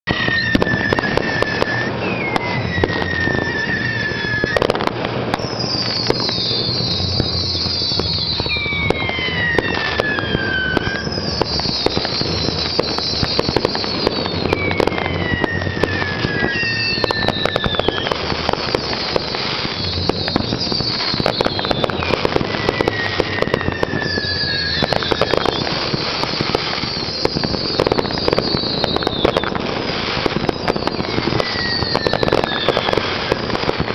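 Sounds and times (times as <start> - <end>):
fireworks bangs and crackling: 0.0 - 33.9
high falling whistles: 0.0 - 33.9.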